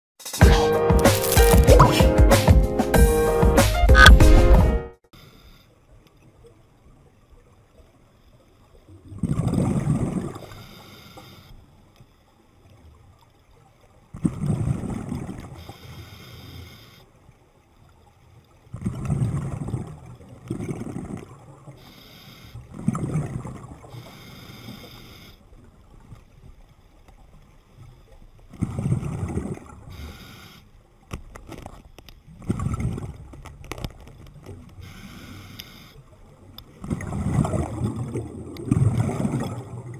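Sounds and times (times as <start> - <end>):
faint hiss of inhalation: 5.2 - 5.7, 10.4 - 11.6, 15.6 - 17.1, 21.8 - 22.7, 23.9 - 25.4, 29.9 - 30.7, 34.8 - 36.0
bubbling rush of exhaled air: 36.8 - 39.9.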